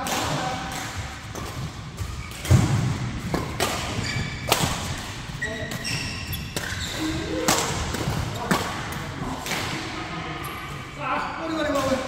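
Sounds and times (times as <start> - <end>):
shoe squeaks on court floor: 3.9 - 4.7, 5.4 - 8.5.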